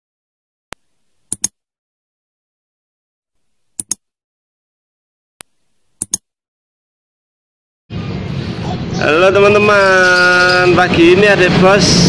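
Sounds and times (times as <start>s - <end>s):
mouse clicks: 0.7s - 1.6s, 3.6s - 4.0s, 5.4s - 6.3s.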